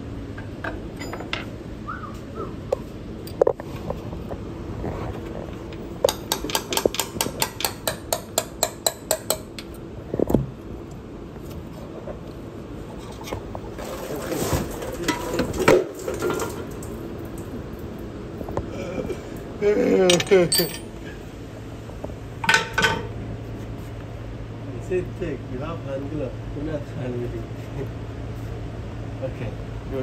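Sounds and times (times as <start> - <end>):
metal clinks: 20.1 - 21.0.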